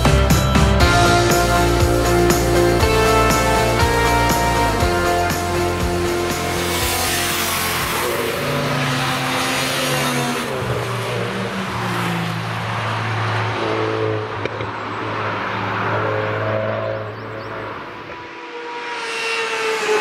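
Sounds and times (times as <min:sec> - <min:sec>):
background music with bass notes: 0:00.0 - 0:08.5
race cars passing at speed: 0:00.8 - 0:20.0.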